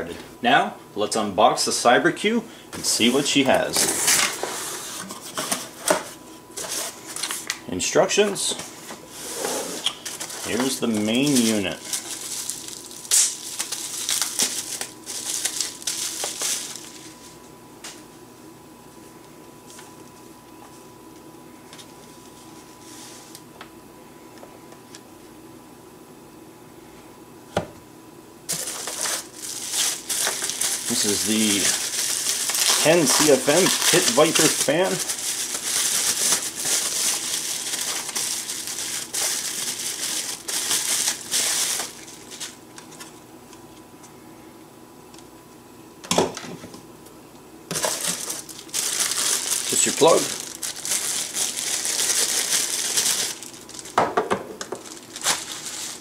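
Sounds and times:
bubble wrap crinkling: 9.8 - 17.4, 28.5 - 43.2, 47.7 - 54.0, 54.6 - 56.0.

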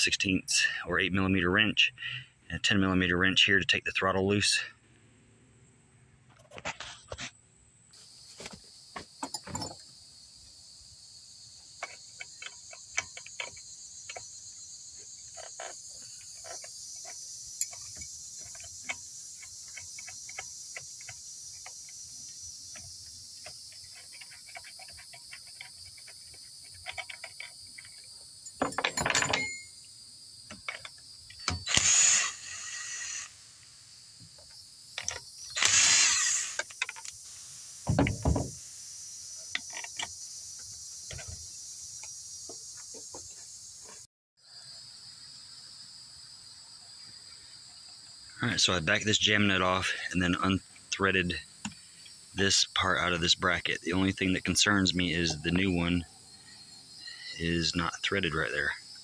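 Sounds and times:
high insect drone: 0.0 - 59.0
light metal clicks of wrenches: 22.7 - 29.7.

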